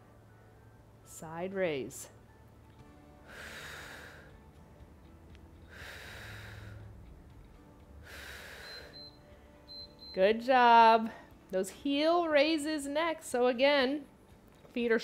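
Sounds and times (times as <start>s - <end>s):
woman breathing heavily: 3.1s - 4.8s, 5.6s - 9.8s.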